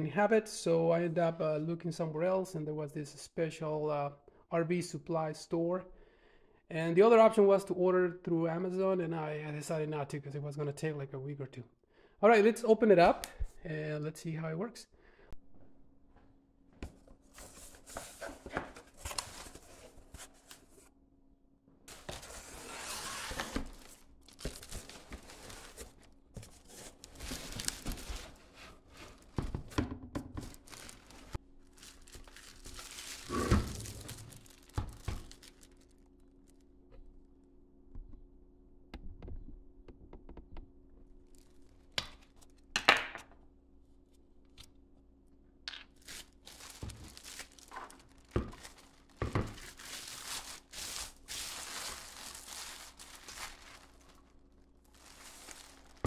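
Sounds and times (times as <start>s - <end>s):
plastic wrapping crinkling and tearing: 21.9s - 29.4s, 30.4s - 36.6s, 46.0s - 56.0s
cardboard box rustling: 21.9s - 29.5s, 54.9s - 56.0s.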